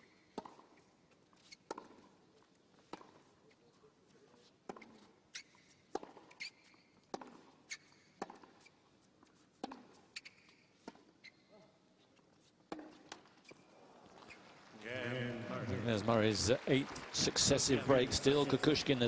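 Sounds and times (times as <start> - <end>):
shoes squeaking on court: 0.0 - 14.7.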